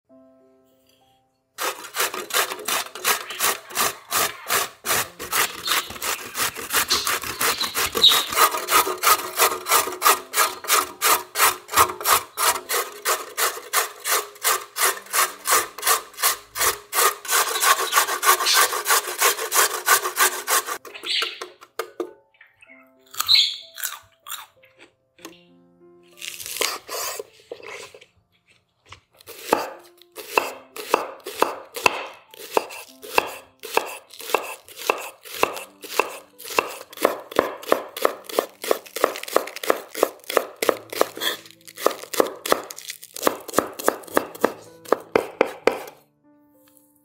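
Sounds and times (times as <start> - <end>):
carrot grating on metal grater: 1.6 - 20.8, 29.3 - 46.0.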